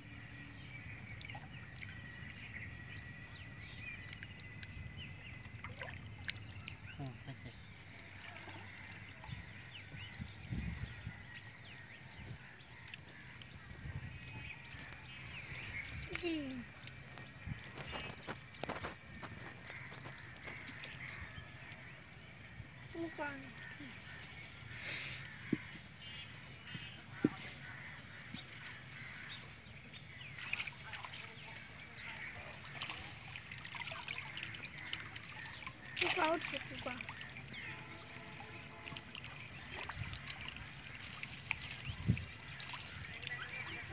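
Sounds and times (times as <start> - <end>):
water trickling and dripping: 0.6 - 43.9
small splashes: 3.6 - 11.0, 11.7 - 24.4, 25.2 - 43.9.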